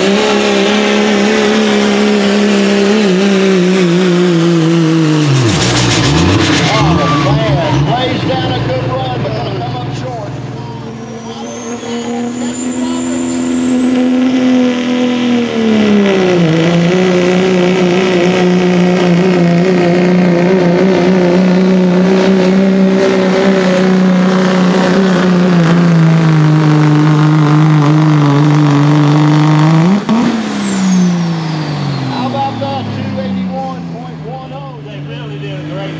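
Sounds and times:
diesel engine at full throttle: 0.0s - 35.9s
high whistle: 10.9s - 14.2s, 30.3s - 32.2s.

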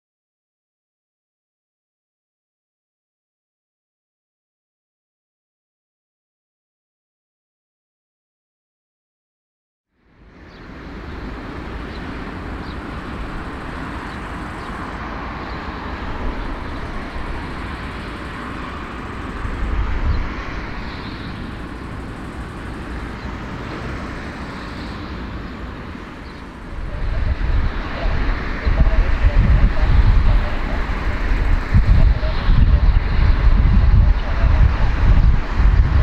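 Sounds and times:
jet engine taxiing drone: 10.0s - 36.0s.

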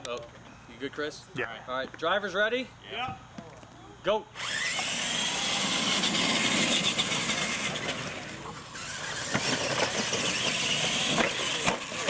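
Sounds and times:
toy truck motors whining: 4.4s - 12.0s.

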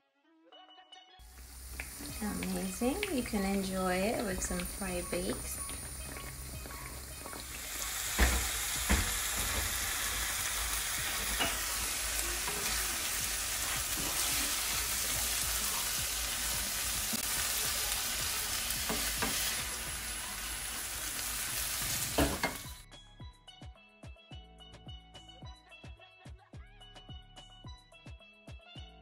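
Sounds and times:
food sizzling in a frying pan: 1.2s - 22.8s
utensil tapping a pan: 1.4s - 10.3s, 11.0s - 13.0s, 18.8s - 19.8s.

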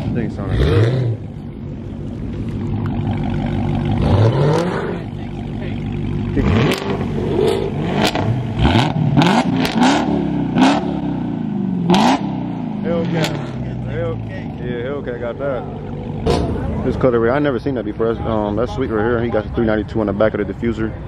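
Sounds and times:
car engine revving: 0.0s - 20.4s.

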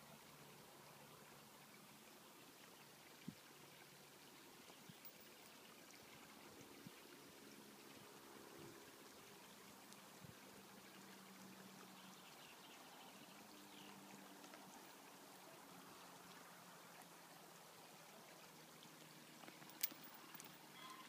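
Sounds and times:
faint outdoor hiss: 0.0s - 21.0s.

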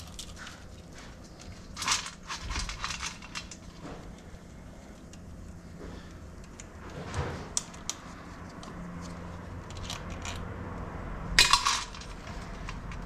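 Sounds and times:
metallic clatter: 0.0s - 4.1s, 11.4s - 13.0s
metal tools and bolts clinking: 11.4s - 13.0s.

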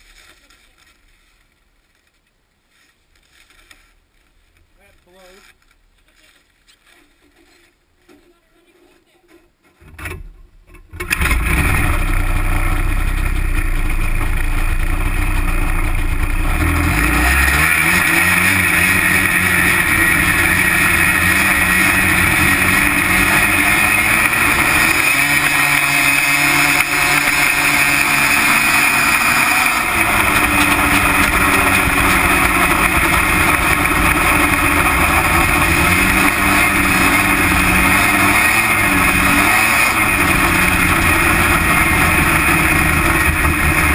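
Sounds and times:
snowmobile engine running: 11.0s - 43.9s.

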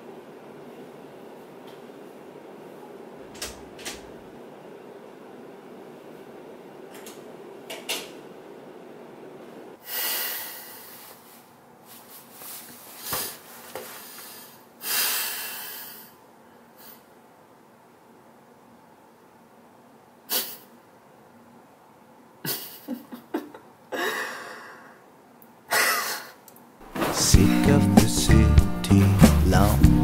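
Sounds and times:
room hum: 0.0s - 30.0s
man exhaling heavily: 9.8s - 11.2s, 14.1s - 17.1s.

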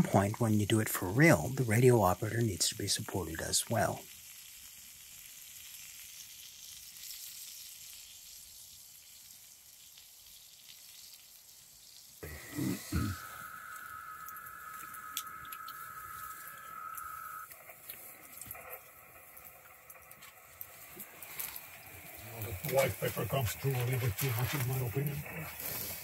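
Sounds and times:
food sizzling: 0.0s - 26.0s
steady high tone: 12.2s - 25.5s.

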